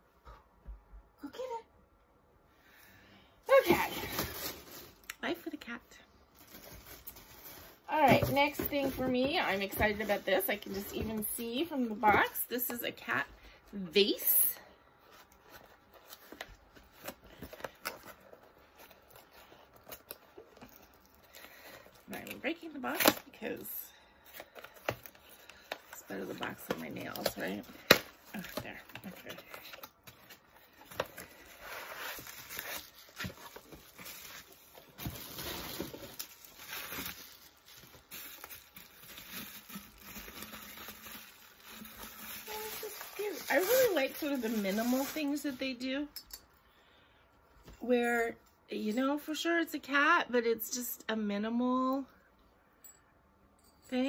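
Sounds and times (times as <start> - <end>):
cardboard and bubble wrap rustling: 3.5 - 13.3, 14.0 - 45.9.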